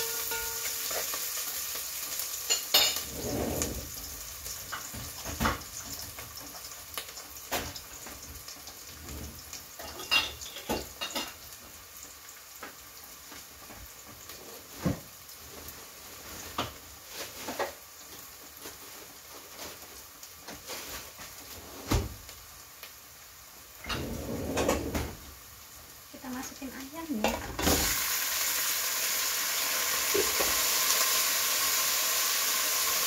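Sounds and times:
pots and dishes clinking: 0.0 - 11.8, 16.5 - 18.3, 23.8 - 25.2, 30.0 - 30.8
food sizzling in a pot: 0.0 - 33.0.

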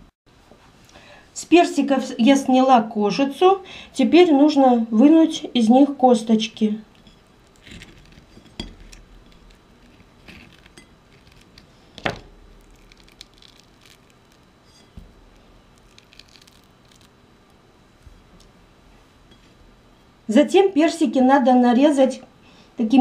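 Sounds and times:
knife scraping a porcelain plate: 7.0 - 11.4, 14.6 - 15.0
wet squishing of fruit: 12.5 - 17.2.

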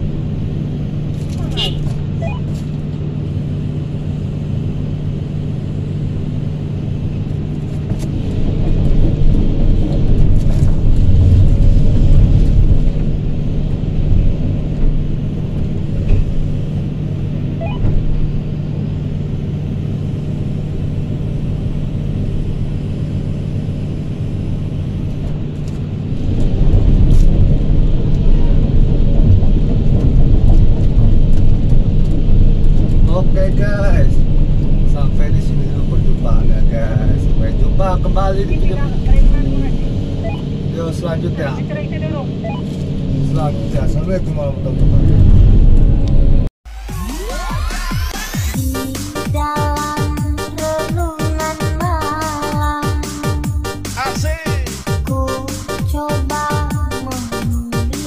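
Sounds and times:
excavator engine humming: 0.0 - 46.5.

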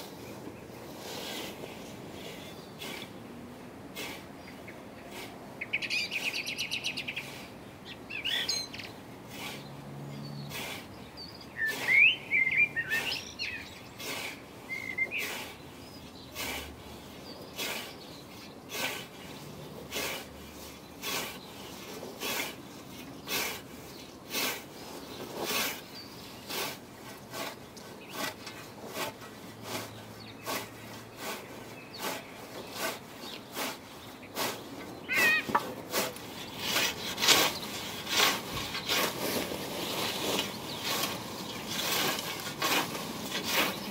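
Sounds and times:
scythe swishing through grass: 3.9 - 4.2, 10.5 - 10.9, 14.0 - 14.4, 15.2 - 15.5, 16.4 - 16.7, 17.6 - 18.0, 18.7 - 19.3, 19.9 - 23.6, 24.3 - 43.9
birds chirping and singing: 4.4 - 9.0, 9.6 - 16.4, 24.8 - 26.6, 29.8 - 42.5, 43.2 - 43.9.

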